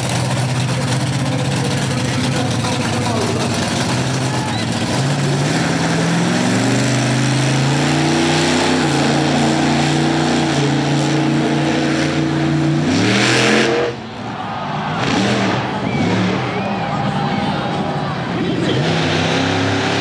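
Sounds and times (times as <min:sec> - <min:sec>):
monster truck engine revving: 0:00.0 - 0:20.0.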